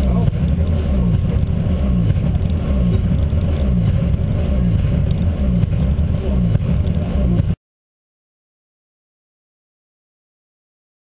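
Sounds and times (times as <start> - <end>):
car engine at low revs: 0.0 - 7.6.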